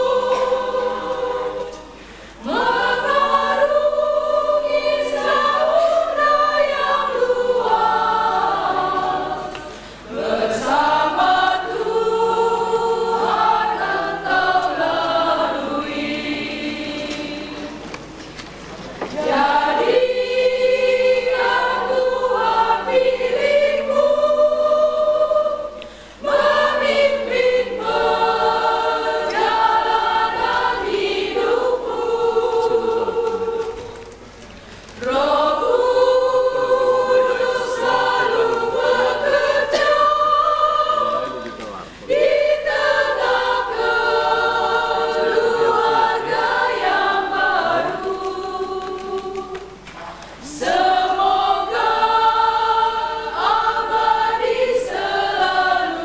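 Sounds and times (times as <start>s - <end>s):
women's choir singing: 0.0s - 18.2s, 19.0s - 49.8s, 50.4s - 56.0s.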